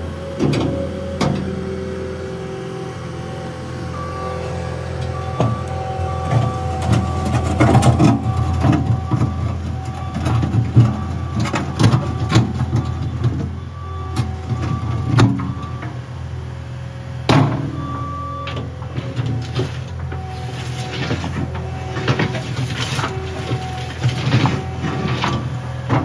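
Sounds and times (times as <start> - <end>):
diesel engine running: 0.0 - 26.0
metal clanks and rattles: 5.0 - 13.5
bucket scraping dirt: 5.1 - 11.3, 19.0 - 26.0.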